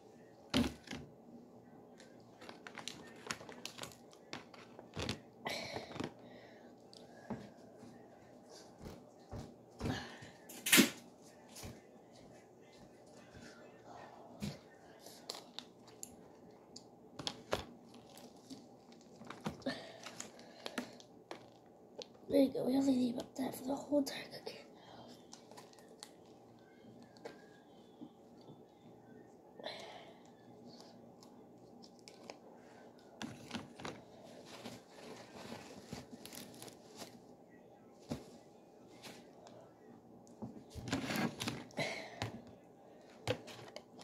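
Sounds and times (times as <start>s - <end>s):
plastic bag crinkling: 2.3s - 5.3s.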